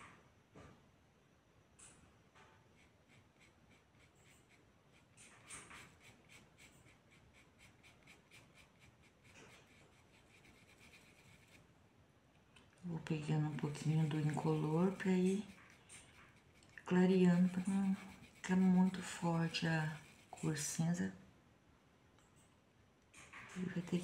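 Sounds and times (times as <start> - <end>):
paintbrush rubbing cloth: 2.8 - 11.6, 13.0 - 20.9.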